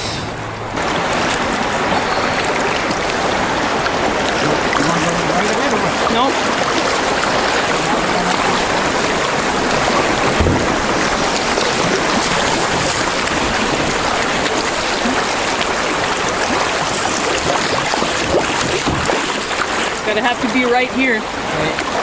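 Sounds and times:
river rapids rushing: 0.0 - 22.0
low thump: 10.2 - 11.1, 18.2 - 19.2.

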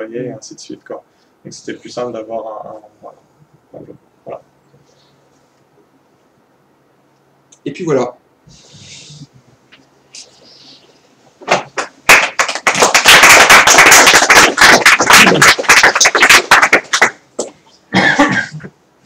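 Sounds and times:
audience applauding: 11.8 - 17.2.

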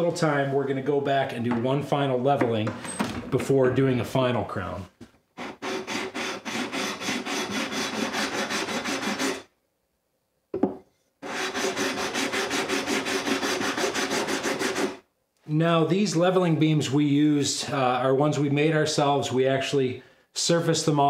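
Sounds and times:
sanding beam on guitar frets: 5.4 - 9.4, 11.2 - 15.0.

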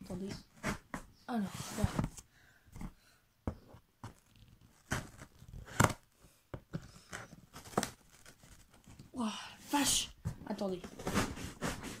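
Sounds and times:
cardboard tearing: 4.1 - 6.1, 6.9 - 9.0.

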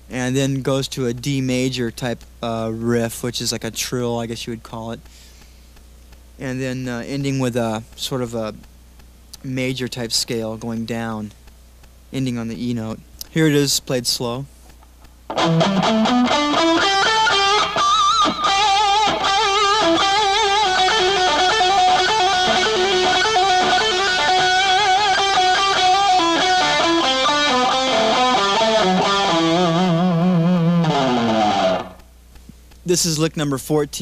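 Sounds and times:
electric guitar lead: 15.3 - 32.1.

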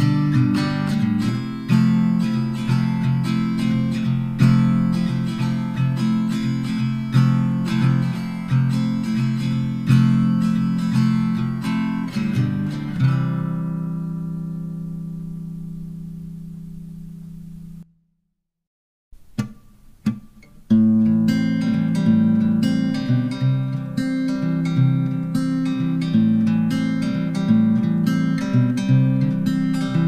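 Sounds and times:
acoustic guitar strumming: 0.0 - 17.8, 19.2 - 30.0.

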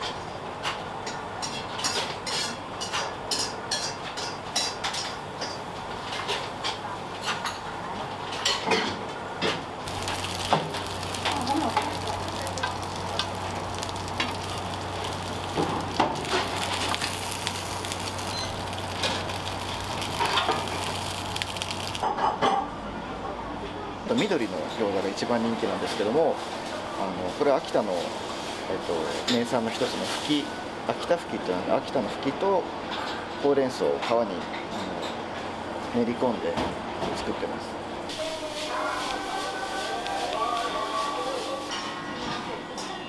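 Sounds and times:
chicken sizzling in hot oil: 9.8 - 22.1.

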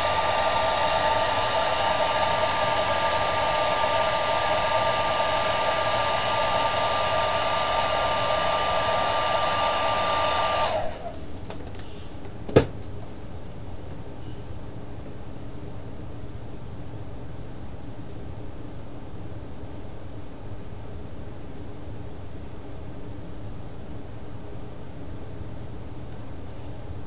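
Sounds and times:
hair dryer blowing: 0.0 - 11.4.

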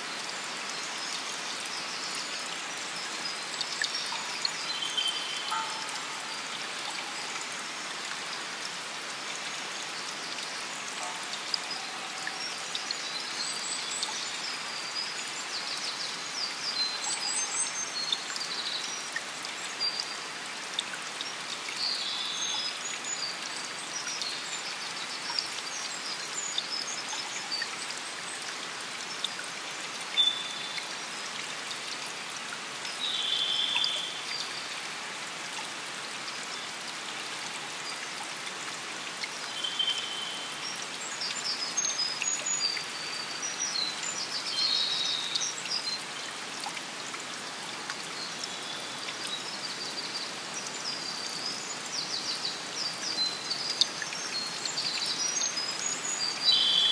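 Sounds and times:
running water: 0.0 - 56.9.

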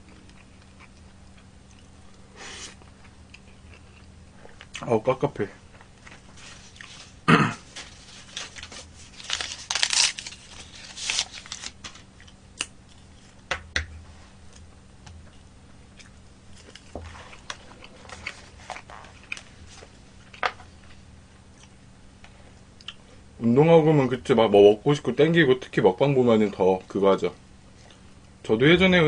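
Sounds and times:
quiet chewing: 0.0 - 4.9, 5.6 - 7.2, 14.5 - 23.1, 27.7 - 28.3
packaging crinkling and rustling: 6.1 - 12.1.

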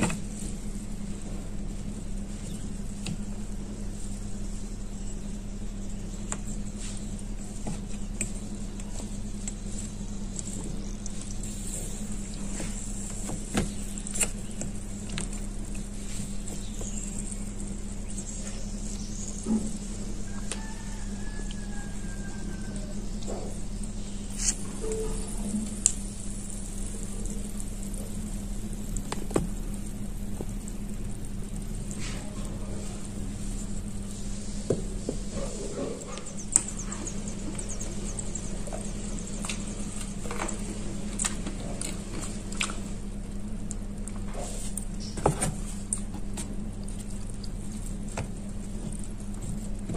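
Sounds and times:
steady low hum: 0.0 - 49.9
knife scraping wet clay: 24.3 - 24.7.

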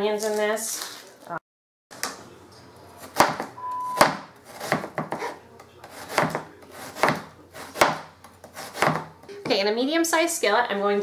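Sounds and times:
knife slicing onion: 3.0 - 9.3.

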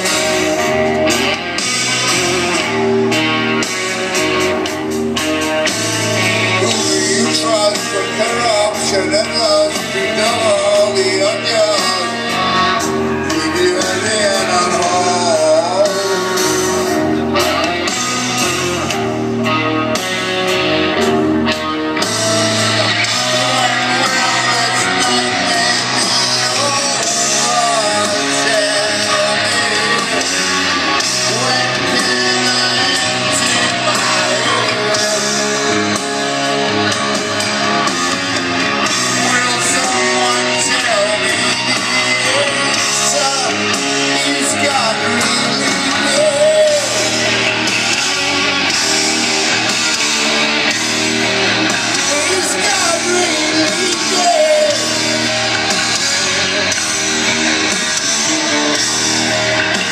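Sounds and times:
distorted electric guitar: 0.0 - 59.9
heavy metal band playing live: 0.0 - 59.9
man singing: 5.6 - 19.0, 22.2 - 36.6, 38.8 - 49.0, 51.9 - 56.4.

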